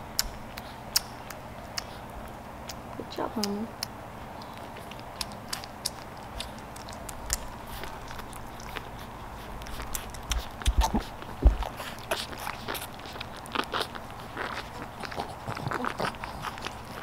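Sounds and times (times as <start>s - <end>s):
puppies suckling: 0.0s - 17.0s
dull low thumps: 10.6s - 11.8s.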